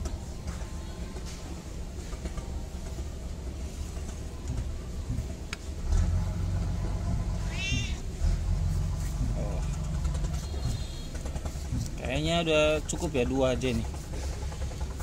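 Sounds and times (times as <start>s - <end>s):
low rumble: 4.0s - 15.0s
cat meowing: 7.4s - 8.0s.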